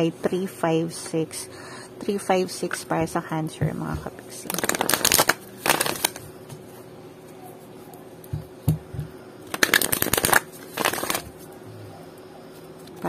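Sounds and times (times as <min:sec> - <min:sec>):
cards flicking while shuffled: 0:09.5 - 0:11.3.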